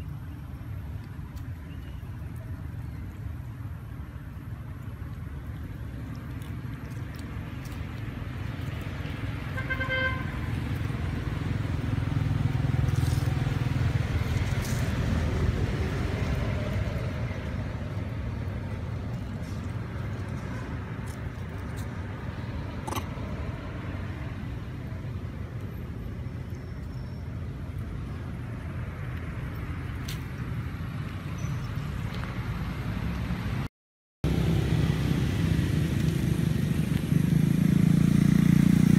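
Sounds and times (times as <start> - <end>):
vehicle passing: 5.8 - 25.0, 29.6 - 38.9.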